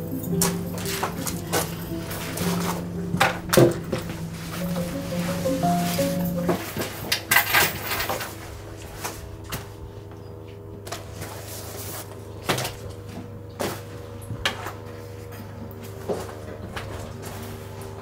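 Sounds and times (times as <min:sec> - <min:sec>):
music tune: 0:00.0 - 0:08.1.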